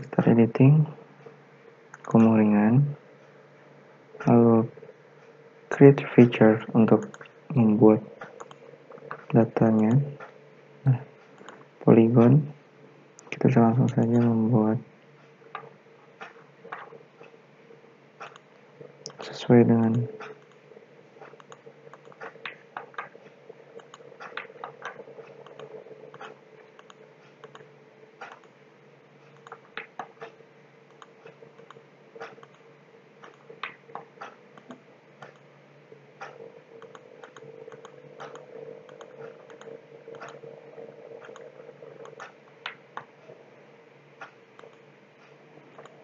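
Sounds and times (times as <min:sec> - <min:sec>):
faint steady hum: 0:00.0 - 0:46.0
computer mouse clicking: 0:01.9 - 0:02.2, 0:07.0 - 0:10.4, 0:11.2 - 0:11.7, 0:18.2 - 0:19.3, 0:19.9 - 0:20.6, 0:21.2 - 0:28.6, 0:29.2 - 0:35.5, 0:36.2 - 0:43.4, 0:44.2 - 0:46.0.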